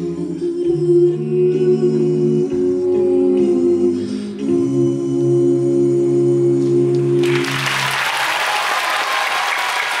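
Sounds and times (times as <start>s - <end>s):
a cappella group singing: 0.0s - 8.2s
audience applause: 7.2s - 10.0s.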